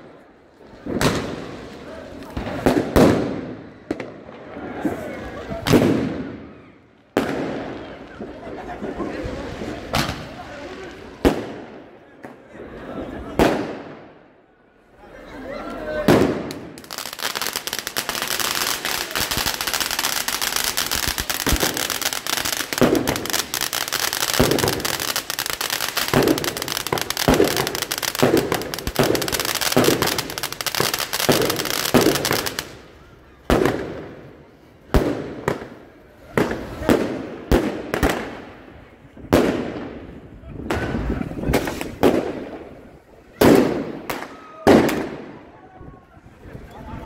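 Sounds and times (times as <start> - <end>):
sharp firework bangs: 0.8 - 1.5, 5.6 - 6.4, 16.1 - 32.7, 40.6 - 42.7
firework thuds: 9.9 - 12.4, 16.0 - 32.7, 39.2 - 45.3
firework hissing crackle: 16.0 - 37.2, 40.9 - 44.3.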